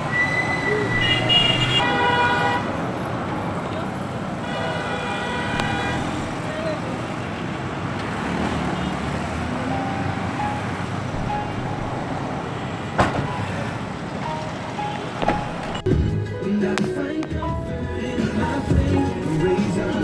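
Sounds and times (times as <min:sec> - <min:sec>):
roadside traffic: 0:00.0 - 0:20.0.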